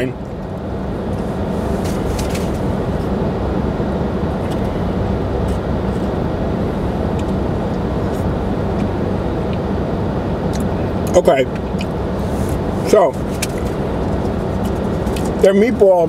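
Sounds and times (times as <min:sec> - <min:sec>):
car idling: 0:00.0 - 0:16.0.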